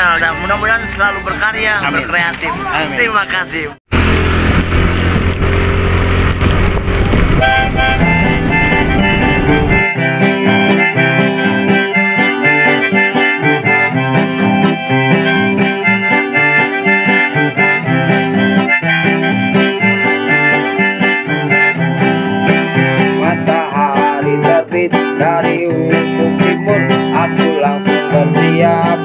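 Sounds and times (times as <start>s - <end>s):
harmonica and acoustic guitar music: 0.0s - 3.7s, 7.3s - 29.0s
wind rushing: 3.9s - 9.9s.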